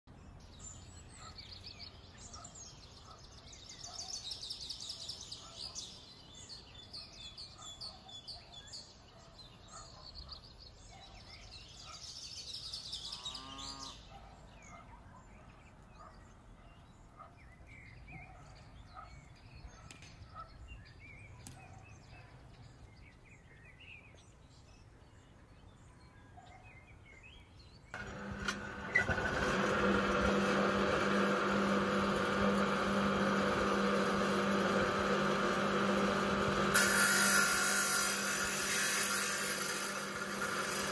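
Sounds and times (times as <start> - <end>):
birds singing: 0.1 - 40.9
steady sound with low hum: 28.0 - 40.9.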